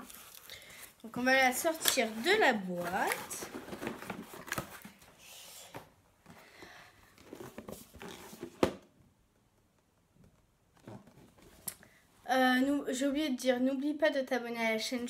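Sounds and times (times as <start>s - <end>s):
cardboard rustling and scraping: 1.1s - 5.9s, 7.2s - 8.8s, 10.7s - 11.6s.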